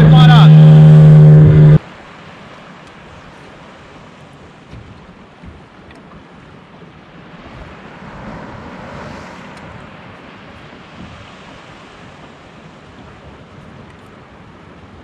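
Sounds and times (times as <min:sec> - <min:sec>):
waves washing: 0:00.0 - 0:15.0
wind on microphone: 0:04.7 - 0:15.0.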